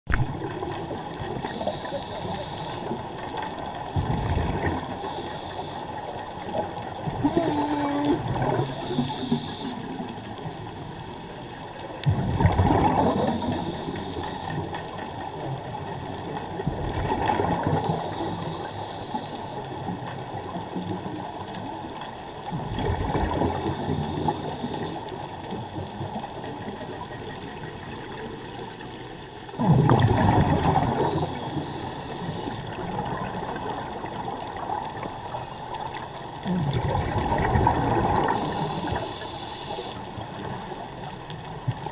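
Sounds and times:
exhaled bubbles underwater: 0:00.1 - 0:28.9, 0:29.5 - 0:41.9
regulator hiss: 0:01.4 - 0:03.0, 0:04.9 - 0:06.1, 0:07.3 - 0:10.0, 0:13.0 - 0:14.6, 0:17.9 - 0:19.6, 0:23.5 - 0:25.0, 0:31.0 - 0:32.6, 0:38.2 - 0:40.1.

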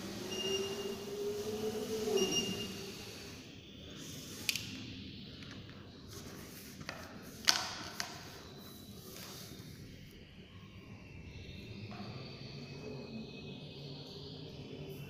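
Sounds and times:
hoverboard motors whining: 0:00.0 - 0:03.6.

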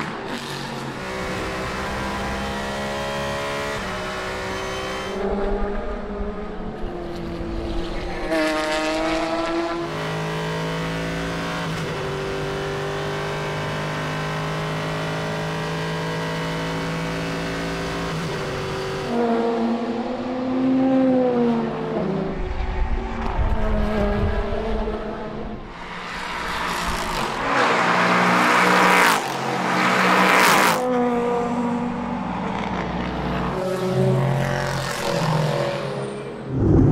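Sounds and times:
race car engine at constant revs: 0:00.0 - 0:22.4, 0:23.6 - 0:36.5
race car passing: 0:19.1 - 0:36.9.

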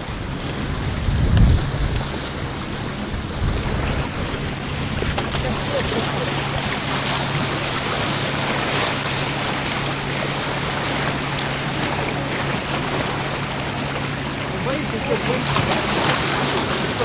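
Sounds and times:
sea waves splashing over rocks: 0:00.0 - 0:17.0.

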